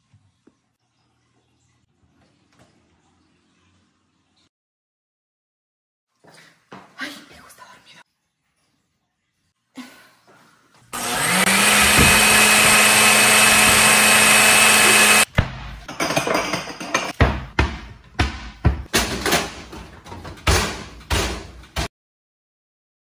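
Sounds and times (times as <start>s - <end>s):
kitchen appliance motor: 10.9s - 15.3s
cabinet doors slamming: 11.7s - 12.8s
pots clattering: 15.8s - 17.2s.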